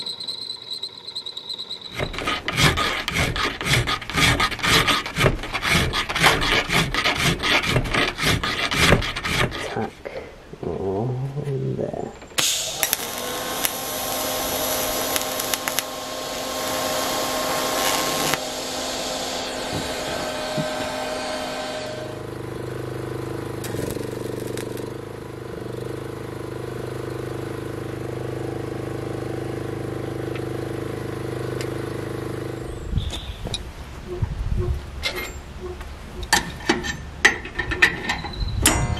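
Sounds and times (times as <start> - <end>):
low mechanical hum: 0.0 - 38.9
welder crackling and hissing: 12.4 - 22.2, 23.3 - 25.1.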